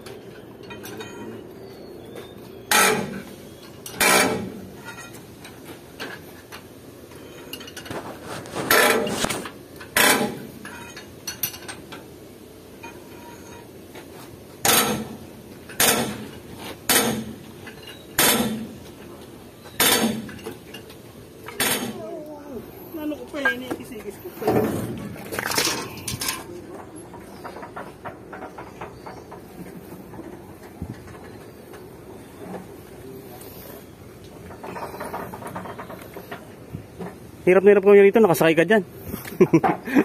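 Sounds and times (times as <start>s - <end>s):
hammer clanging on steel: 2.7s - 3.2s, 14.6s - 18.7s.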